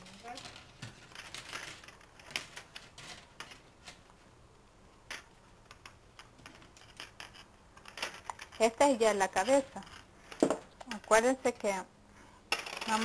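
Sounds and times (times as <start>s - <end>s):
metal wire clicking and scraping: 5.1s - 11.7s.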